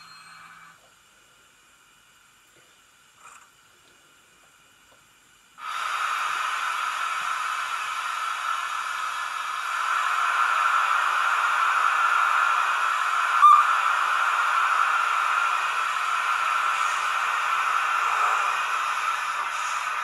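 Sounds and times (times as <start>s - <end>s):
steam hiss from small speaker: 5.6s - 20.0s.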